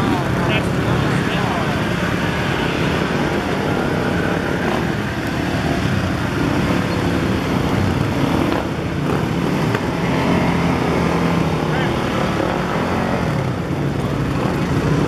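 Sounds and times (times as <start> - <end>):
dirt bike and quad engines: 0.0 - 15.0.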